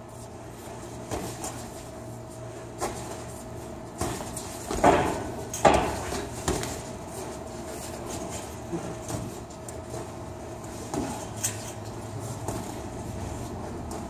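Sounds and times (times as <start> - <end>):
boxing gloves punching: 3.9 - 6.9.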